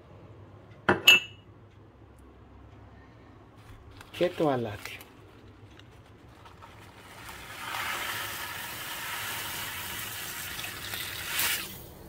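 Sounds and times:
salt pouring into water: 0:06.4 - 0:11.9.

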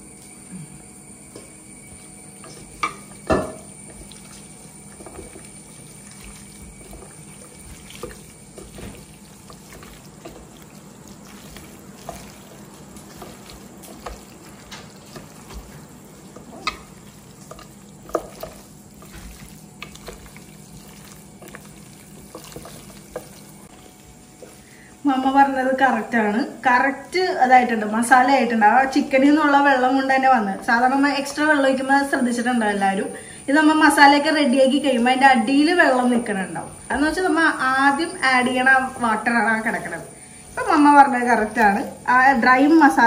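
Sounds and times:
hands squelching raw chicken: 0:03.9 - 0:23.7.

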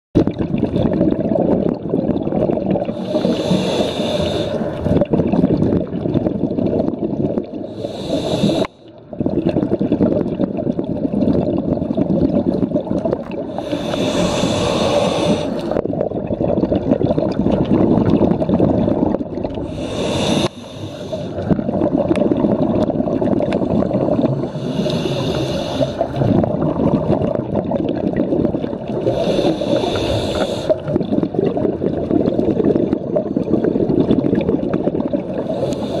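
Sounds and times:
underwater bubbling exhalation: 0:00.2 - 0:36.0
regulator hissing inhalation: 0:02.9 - 0:04.8, 0:07.7 - 0:08.8, 0:13.5 - 0:15.8, 0:19.7 - 0:21.4, 0:24.4 - 0:26.2, 0:29.0 - 0:30.8, 0:35.4 - 0:36.0.

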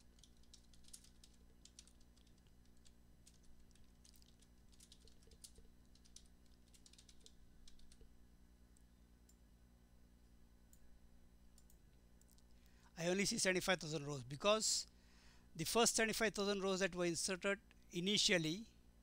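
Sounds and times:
keyboard typing clicks: 0:00.1 - 0:08.1.

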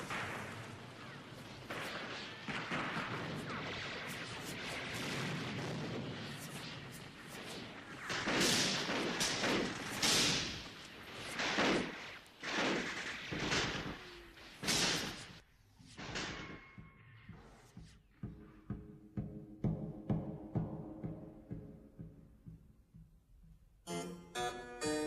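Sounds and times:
loud gunshots: 0:00.0 - 0:15.4.

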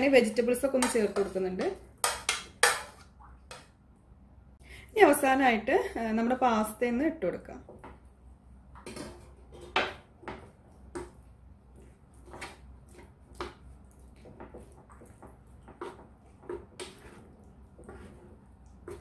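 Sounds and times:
wooden spatula scraping frying pan: 0:00.0 - 0:03.1, 0:11.8 - 0:19.0.

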